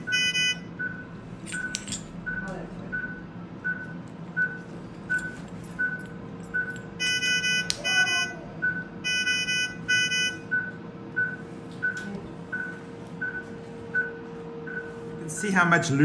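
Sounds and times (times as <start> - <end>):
buzzy alarm tone: 0.0 - 0.7, 7.0 - 10.4
faint steady hum: 0.0 - 16.0
patient monitor beeping: 0.0 - 16.0.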